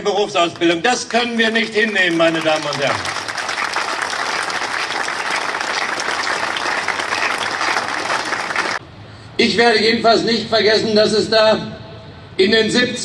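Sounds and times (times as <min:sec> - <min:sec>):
crowd applauding: 0:01.1 - 0:08.8.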